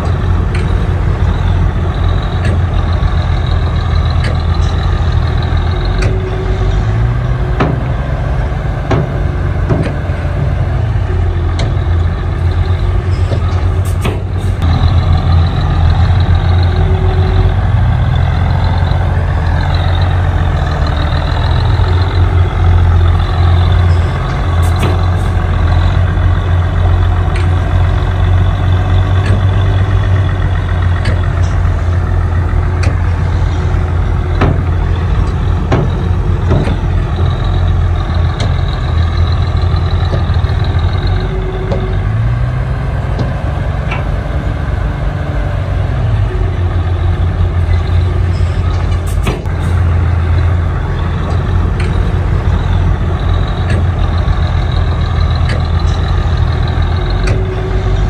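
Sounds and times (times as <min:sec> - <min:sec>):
heavy diesel engine running: 0:00.0 - 0:58.0
sharp knocks: 0:07.6 - 0:08.0, 0:08.8 - 0:10.1.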